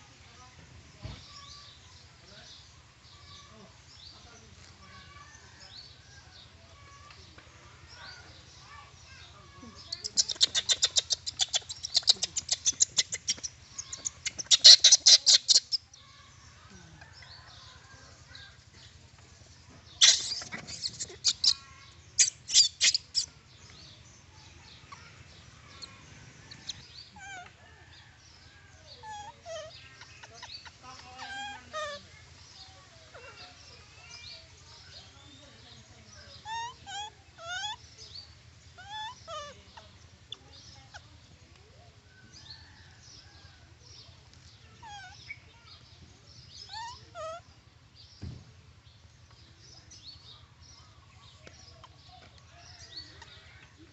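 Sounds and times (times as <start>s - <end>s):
rapid high chattering calls: 8.2s - 18.6s, 19.8s - 27.6s, 36.2s - 41.1s.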